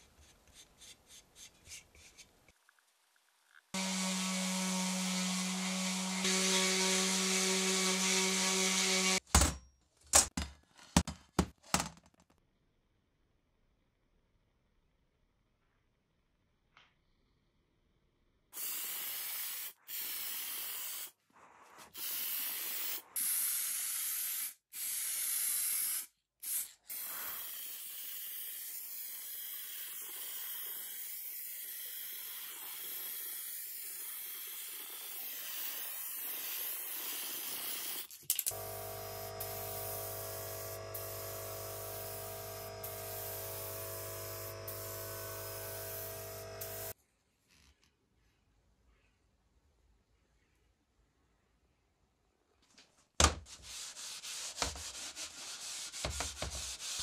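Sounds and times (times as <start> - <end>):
pressurised spray hissing: 26.4 - 27.8, 38.8 - 47.0
motor hum with held tones: 38.5 - 47.0.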